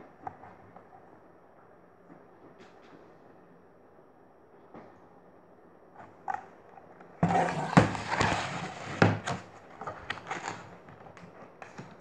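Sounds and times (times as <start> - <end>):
handling rustling scrape: 7.2 - 12.0.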